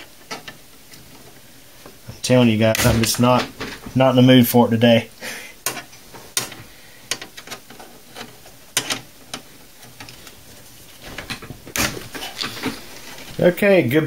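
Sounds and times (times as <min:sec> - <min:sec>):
rubber grommets clicking and knocking: 0:05.6 - 0:13.4
rubbing and scraping: 0:05.7 - 0:13.4.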